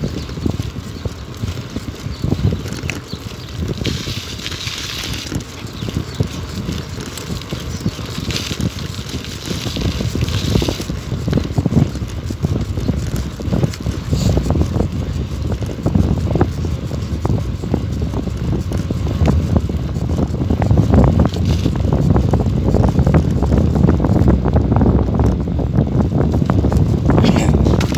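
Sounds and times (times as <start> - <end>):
bicycle rolling on rough asphalt: 0.0 - 27.9
wind buffeting microphone: 0.0 - 27.9
small knocks and rattles: 27.6 - 27.9.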